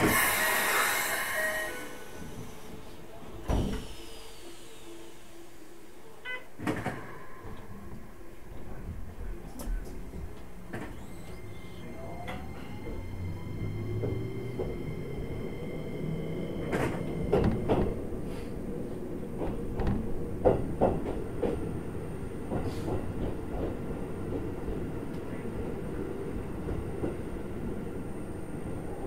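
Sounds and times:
train wheels rumbling on rail: 0:00.0 - 0:04.2, 0:06.6 - 0:29.0
wheels clacking over rail joints: 0:16.6 - 0:25.8.

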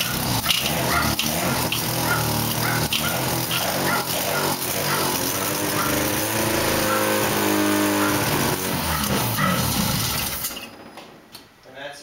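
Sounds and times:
rotary engine running: 0:00.0 - 0:10.9.

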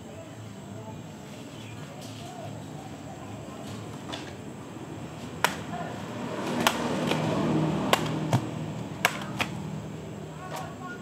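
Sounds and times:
knife chopping plant stem: 0:07.9 - 0:09.5.

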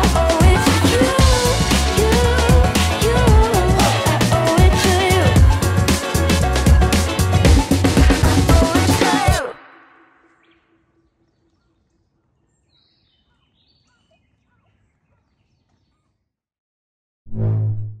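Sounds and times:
background music: 0:00.0 - 0:10.5
faint bird chirps: 0:10.1 - 0:16.3.

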